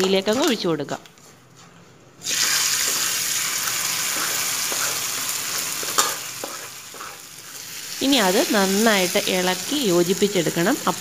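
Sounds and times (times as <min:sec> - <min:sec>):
hot oil sizzling and crackling: 0:02.2 - 0:11.0.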